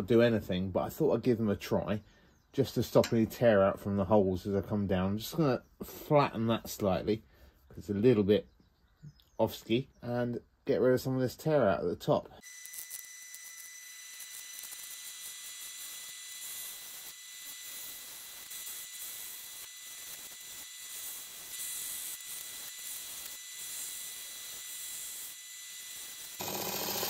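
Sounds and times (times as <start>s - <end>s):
chisel cutting wood on lathe: 12.5s - 27.0s.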